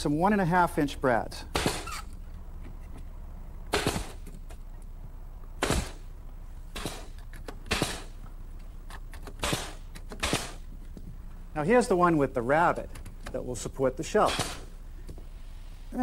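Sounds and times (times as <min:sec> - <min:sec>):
pneumatic nailer shots into wood: 0:01.5 - 0:02.1, 0:03.7 - 0:04.6, 0:05.6 - 0:06.1, 0:06.7 - 0:08.2, 0:09.1 - 0:10.7, 0:14.2 - 0:14.8.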